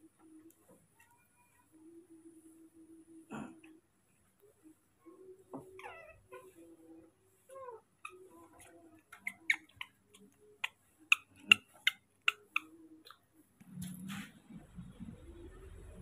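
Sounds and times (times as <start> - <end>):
baby monkey squeak: 8.0 - 10.0.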